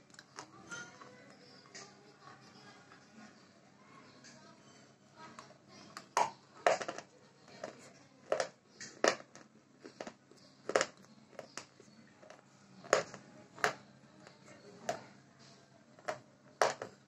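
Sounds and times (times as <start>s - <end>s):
chewing crunchy wafer bar: 6.0s - 14.4s.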